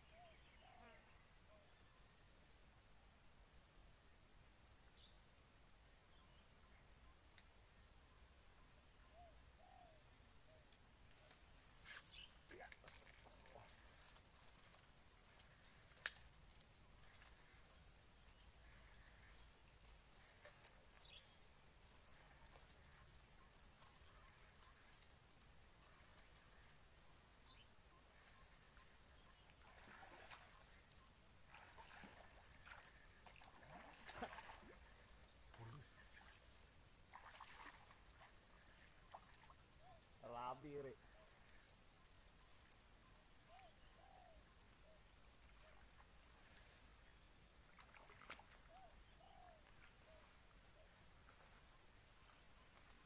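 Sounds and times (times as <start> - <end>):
high-pitched insect trill: 6.1 - 53.0
faint splashes: 29.7 - 30.6, 31.4 - 36.4, 37.1 - 38.3, 47.8 - 48.6.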